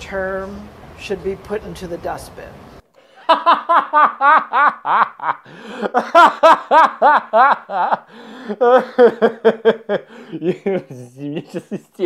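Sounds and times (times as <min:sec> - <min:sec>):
man laughing hard: 0:03.1 - 0:12.0.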